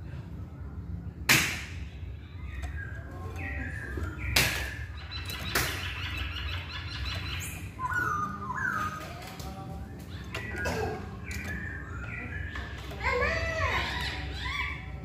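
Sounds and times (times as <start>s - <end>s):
bird whistled calls: 2.5s - 9.1s.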